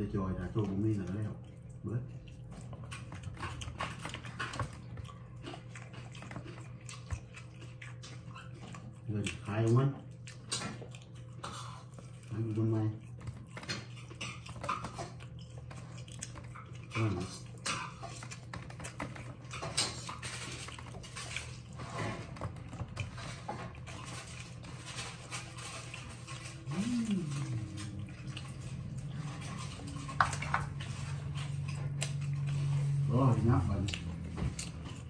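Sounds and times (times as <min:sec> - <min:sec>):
chewing and mouth sounds: 0:00.0 - 0:35.0
low hum: 0:26.3 - 0:35.0.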